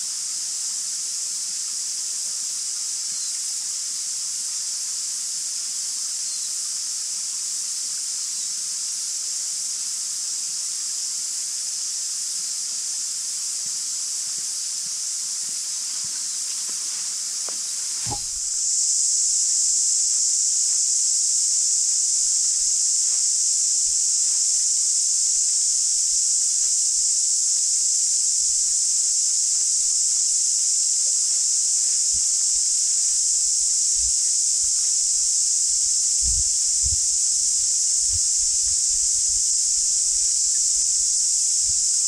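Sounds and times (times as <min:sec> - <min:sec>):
cicada chorus: 0:00.0 - 0:42.0
soft low thumps: 0:18.0 - 0:18.5.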